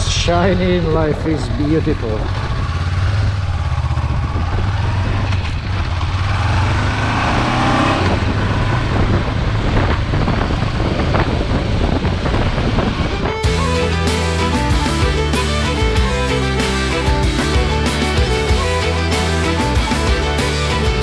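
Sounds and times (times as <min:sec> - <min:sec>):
motorcycle engine accelerating: 0:00.0 - 0:21.0
wind noise on microphone: 0:02.1 - 0:15.0
music: 0:13.1 - 0:21.0.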